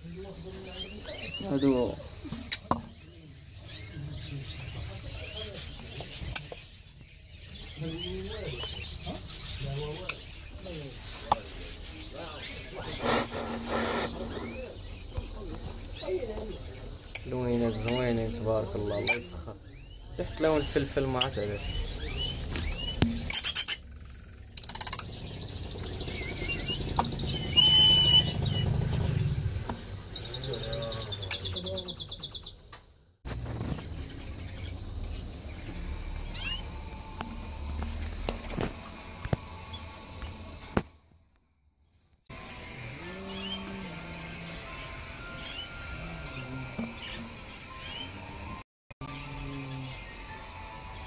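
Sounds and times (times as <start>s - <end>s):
small birds chirping: 0.0s - 32.8s, 33.4s - 37.5s.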